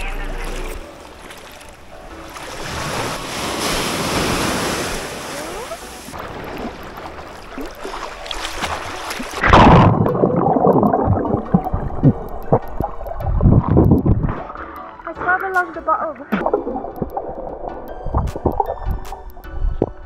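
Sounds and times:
small waves washing: 0.3 - 12.3
underwater splashing and bubbling: 0.6 - 20.0.

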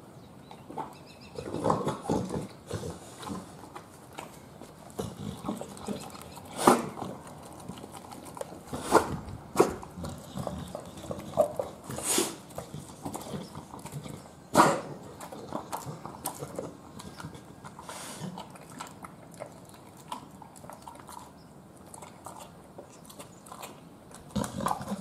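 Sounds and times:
dog chewing wetly: 0.5 - 25.0.

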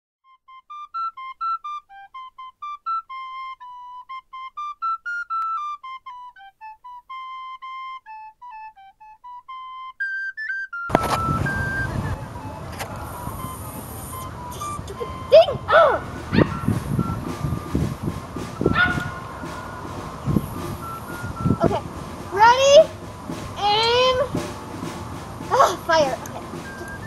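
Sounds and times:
solo flute tune: 0.2 - 27.0
wind on microphone: 10.9 - 27.0.

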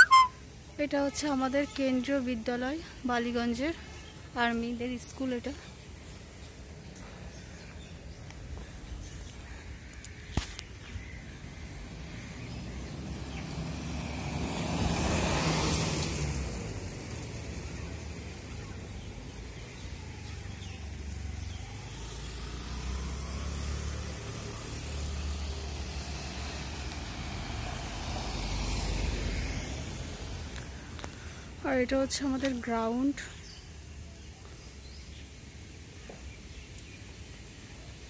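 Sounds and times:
traffic rumble: 0.0 - 38.0
vehicle passing: 11.5 - 19.5, 20.1 - 31.0.

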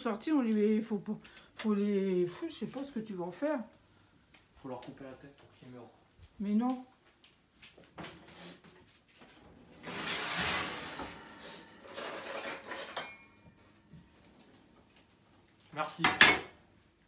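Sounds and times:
noisy rustle: 9.4 - 12.6
dishes and utensils clattering: 9.7 - 14.0, 16.0 - 16.6.

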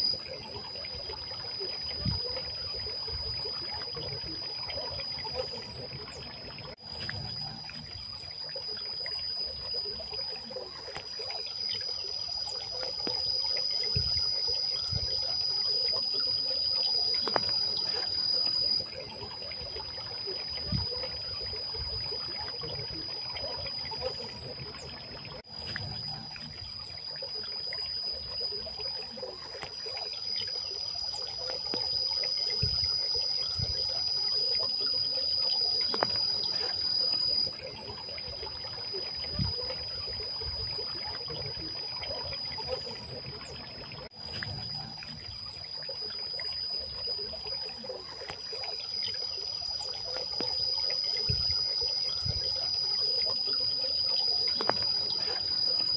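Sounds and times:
fountain water trickling and splashing: 0.0 - 55.9.

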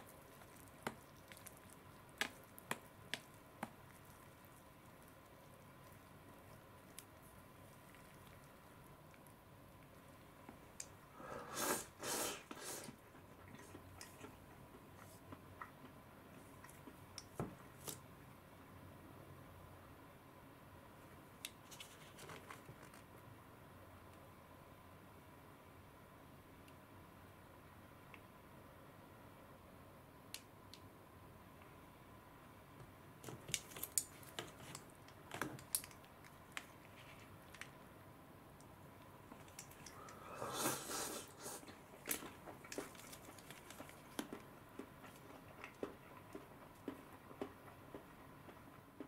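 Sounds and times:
slurping noodles: 11.2 - 13.0, 40.0 - 41.8.

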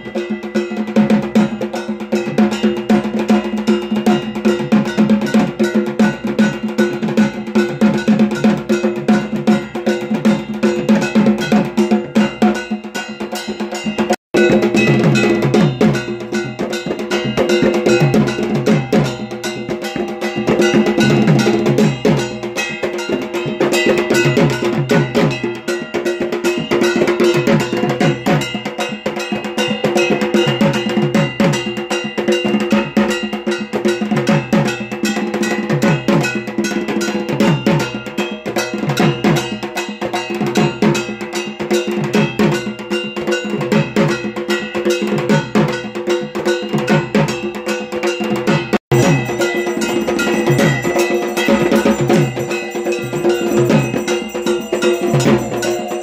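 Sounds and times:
metal gong clanging: 0.0 - 56.0
drum beating quick strokes: 45.1 - 56.0.

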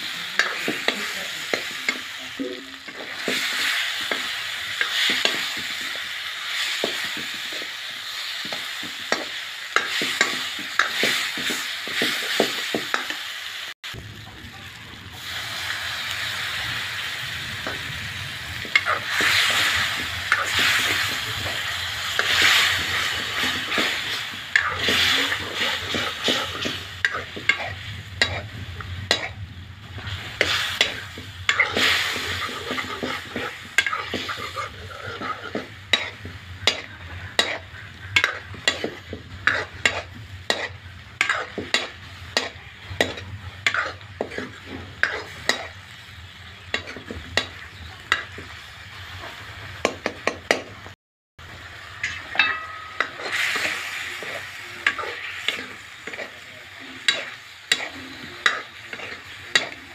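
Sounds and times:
curry sizzling: 0.0 - 59.9
metal ladle scraping iron pan: 30.0 - 45.8, 52.0 - 56.4.

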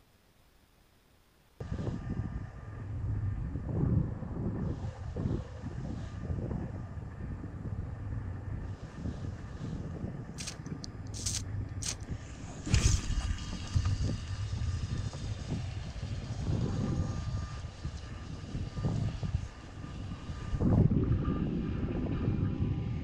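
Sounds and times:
wind buffeting microphone: 1.6 - 23.0
sharp clicks: 10.4 - 12.1.

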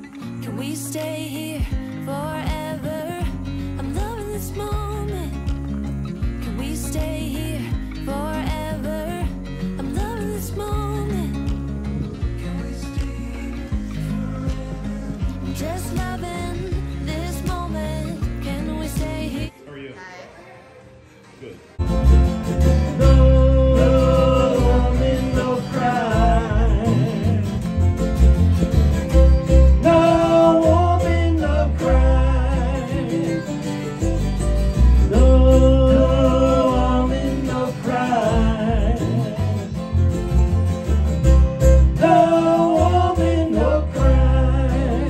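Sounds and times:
country song with guitar and singing: 0.0 - 19.6, 21.8 - 45.0
steady bass beat: 2.5 - 19.3, 21.8 - 37.5.

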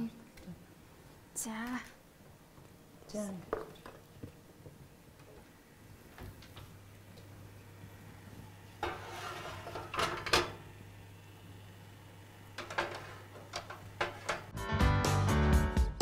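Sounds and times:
low steady hum: 0.0 - 14.6
metal tray clattering: 8.8 - 10.6, 12.6 - 14.5
music: 14.5 - 16.0.

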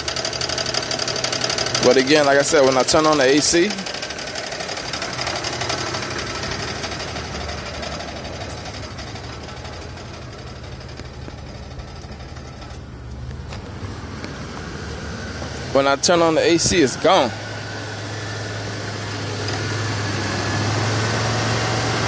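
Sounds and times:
fast engine knocking: 0.0 - 12.8
car engine idling: 0.0 - 22.0.

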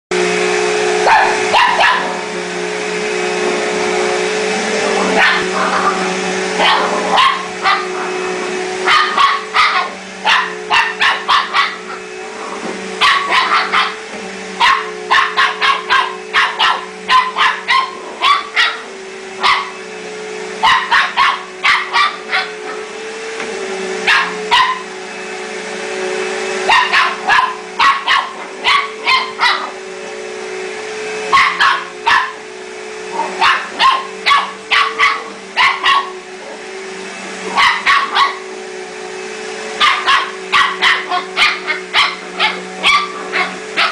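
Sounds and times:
vacuum cleaner humming: 0.1 - 43.9
small dog barking: 1.0 - 2.2, 5.1 - 6.0, 6.6 - 8.1, 8.8 - 12.0, 13.0 - 14.0, 14.6 - 19.8, 20.6 - 22.9, 24.0 - 24.9, 26.6 - 29.8, 31.3 - 32.4, 33.1 - 36.2, 37.4 - 38.5, 39.8 - 43.9.

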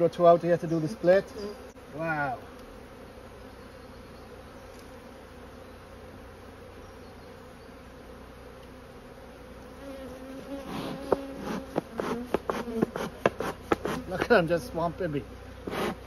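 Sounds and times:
honeybees buzzing: 0.0 - 16.0
sharp taps: 11.0 - 14.4.

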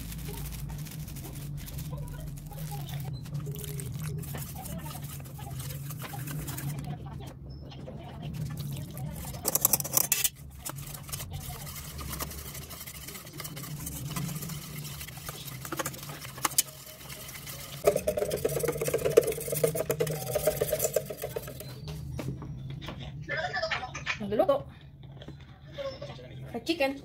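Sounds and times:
wire whisk beating batter in pot: 0.0 - 7.2, 8.1 - 21.9.

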